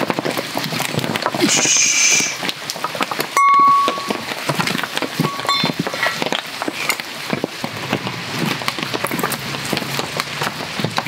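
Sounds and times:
wood fire ticking and popping: 0.0 - 11.0
metal pan ringing: 3.4 - 4.4, 5.2 - 5.9.

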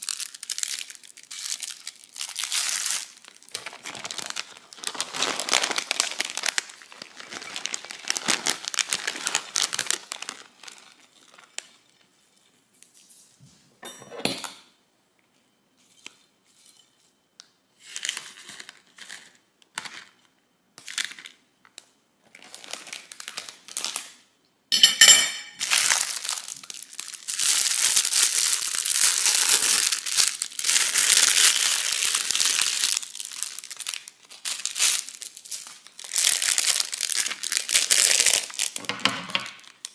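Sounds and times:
plastic bag ripping: 0.0 - 11.9, 25.6 - 39.9
plastic bags crinkling: 0.0 - 12.9, 17.8 - 24.3, 25.6 - 39.9.

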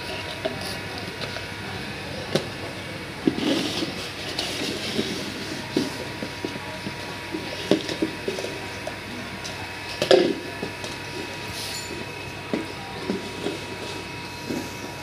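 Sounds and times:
plastic bucket scraping on stone floor: 3.3 - 5.4.

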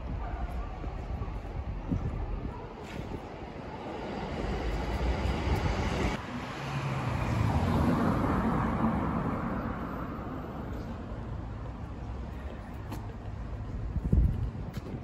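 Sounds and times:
street background rumble: 0.0 - 15.0
vehicle passing: 3.7 - 10.8.

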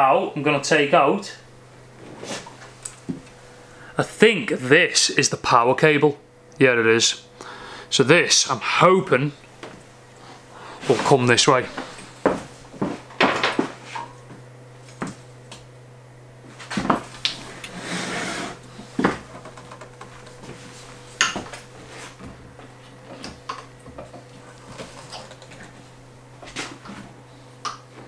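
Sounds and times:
steady low hum: 0.0 - 28.0
scraping rustle: 16.5 - 21.1
knocks and clicks from handling: 19.0 - 20.6.

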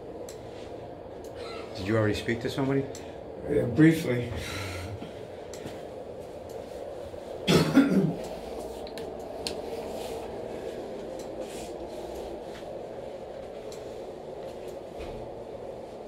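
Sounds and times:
low room hum: 0.0 - 16.0
person coughing: 7.4 - 8.3.

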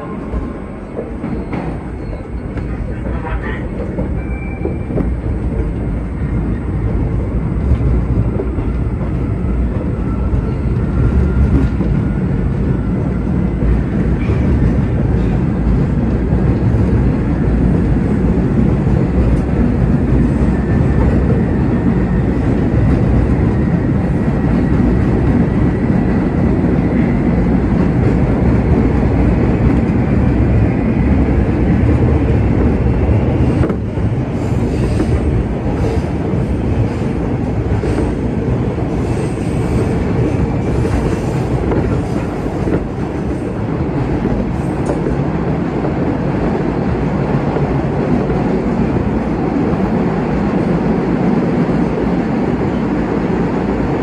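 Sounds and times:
subway wheels rumbling on rail: 0.0 - 54.0.

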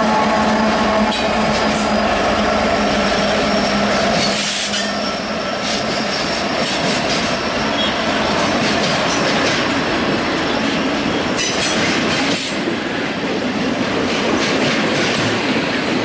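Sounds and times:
diesel locomotive engines droning: 0.0 - 14.4
train wheels rumbling on rails: 0.0 - 16.0
high wheel squeal: 0.1 - 8.5.

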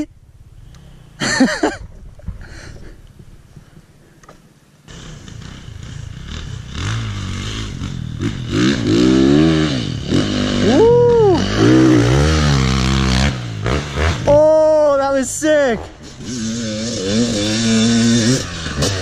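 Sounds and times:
dirt bike engine revving: 4.8 - 15.2, 15.8 - 19.0.

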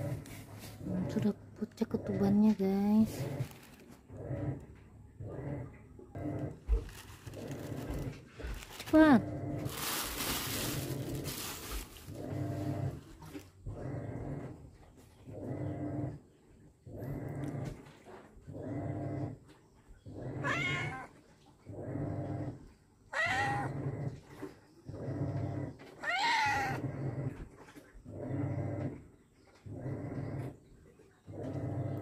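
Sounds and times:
cat making low rough sound: 20.1 - 21.2, 21.8 - 24.4
cat yowling meows: 20.4 - 21.1, 23.1 - 23.7, 26.0 - 26.8.

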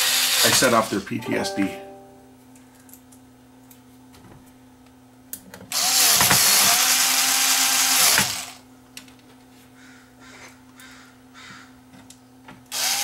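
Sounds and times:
cordless screwdriver motor whine: 5.7 - 8.6, 12.7 - 13.0.

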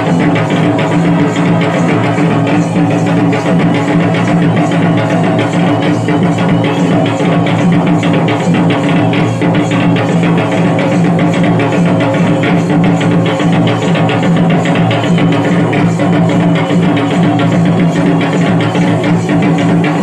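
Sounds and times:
rapid dense drumming: 0.0 - 20.0.

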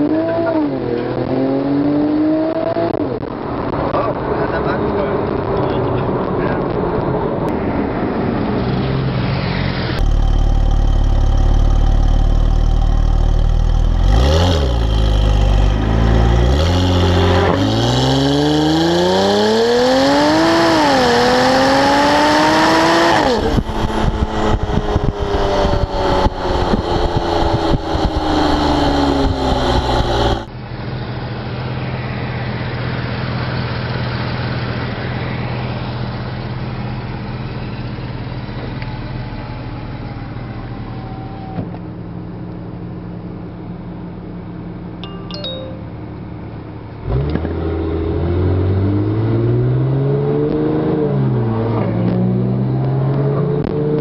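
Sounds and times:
car engine accelerating hard: 0.0 - 41.0, 47.0 - 54.0
exhaust crackles and pops: 2.5 - 7.2, 10.0 - 15.8, 23.4 - 30.5
car engine idling: 10.0 - 16.6.

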